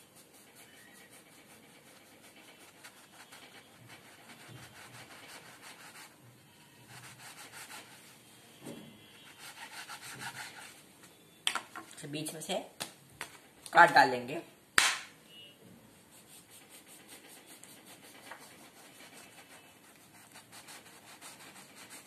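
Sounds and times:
knife sawing through bread: 0.0s - 3.3s.

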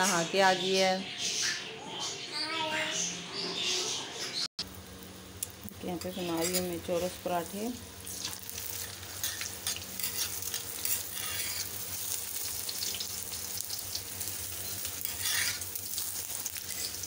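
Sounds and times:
flatbread sizzling in oil: 4.6s - 17.0s
metal spatula scraping griddle: 6.0s - 7.1s, 8.1s - 12.5s, 14.2s - 17.0s.

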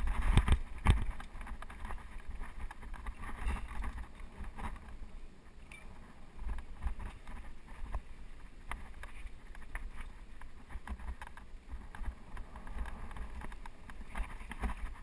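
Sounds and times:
bike knocks and rattles: 0.0s - 5.0s
bike tyres on rocky dirt: 0.0s - 15.0s
wind rumble on microphone: 0.0s - 15.0s.

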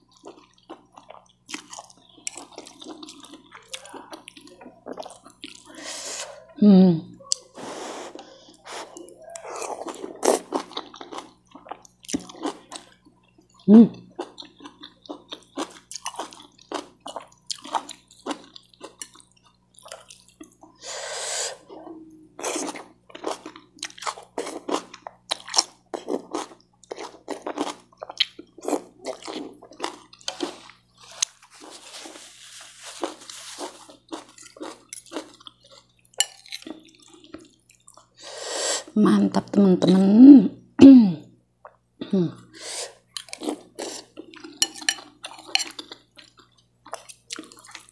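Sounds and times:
woman chewing and slurping noodles: 22.4s - 38.9s, 42.6s - 47.9s.

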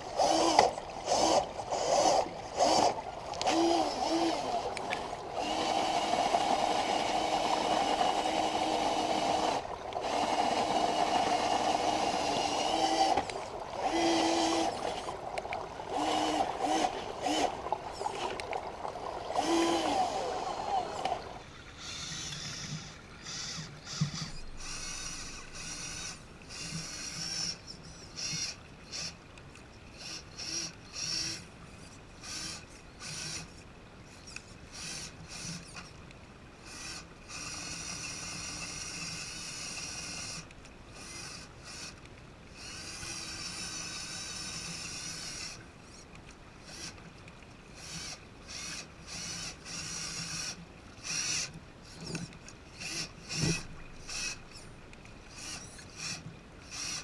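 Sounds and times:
electric motor and gears whining: 0.0s - 18.5s, 19.3s - 29.0s, 47.8s - 54.7s
water splashing: 0.0s - 21.5s.

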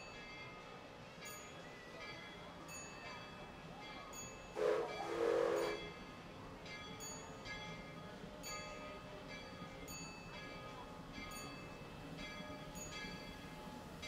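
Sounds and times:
steam locomotive whistle: 4.5s - 5.9s.

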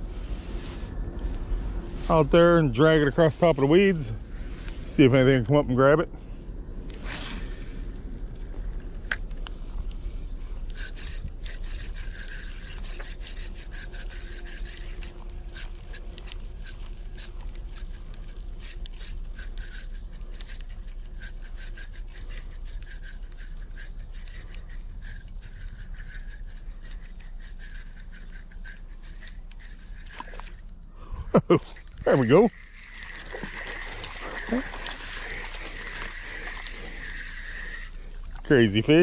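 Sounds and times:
low wind rumble: 0.0s - 19.3s
frogs calling: 0.0s - 39.0s
insects droning: 0.0s - 39.0s
fishing reel clicking: 10.7s - 30.6s, 31.7s - 38.8s.

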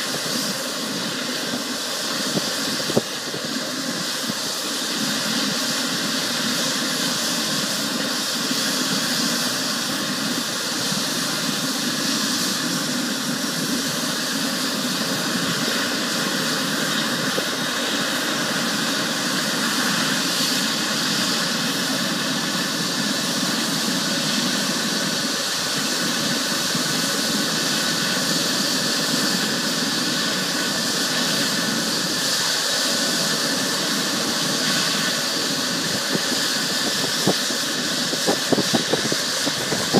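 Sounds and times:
helicopter turbine engine running: 0.0s - 39.9s.

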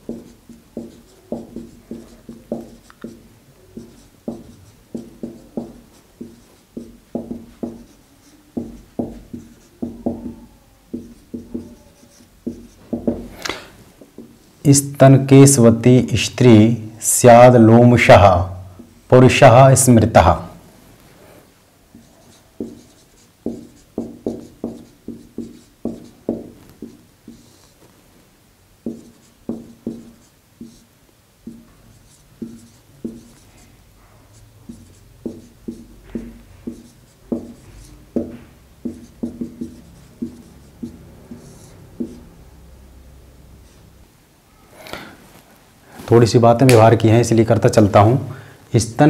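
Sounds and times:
marker writing on whiteboard: 0.0s - 14.8s, 21.9s - 28.0s, 28.8s - 42.5s.

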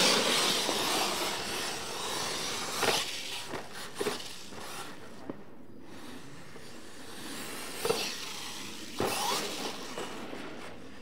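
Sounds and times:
tyres spinning on dirt: 0.0s - 4.8s.

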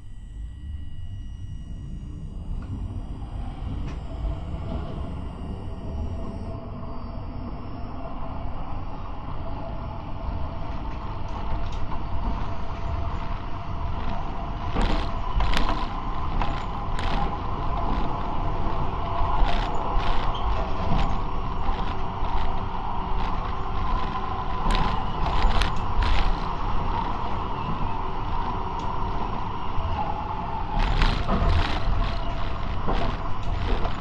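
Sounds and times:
tram rumbling on track: 1.9s - 34.0s
wheel clicks and creaks: 10.9s - 29.0s, 29.9s - 34.0s.

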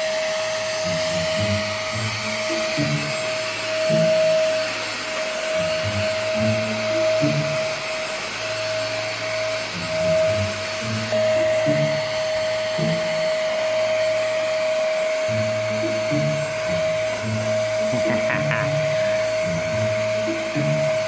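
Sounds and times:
vacuum cleaner whine: 0.0s - 21.0s
music with stepping bass line: 0.7s - 4.7s, 5.4s - 7.9s, 9.8s - 13.4s, 15.2s - 21.0s.

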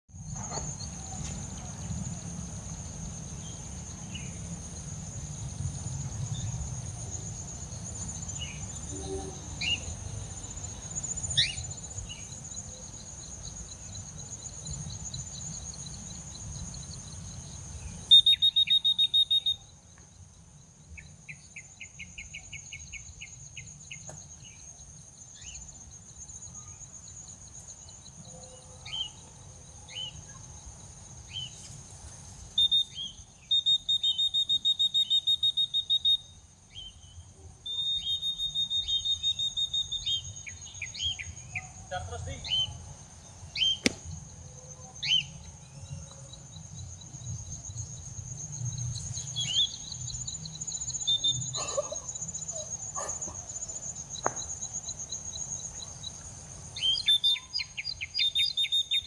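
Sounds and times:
high insect drone: 0.1s - 59.0s
bird chirping: 7.7s - 16.0s, 16.8s - 19.8s, 32.5s - 44.2s, 48.8s - 54.3s, 56.8s - 59.0s.

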